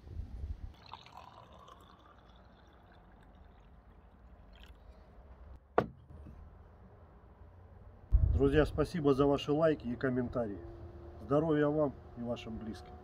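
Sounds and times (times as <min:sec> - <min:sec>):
drink pouring into a glass: 0:00.7 - 0:05.0.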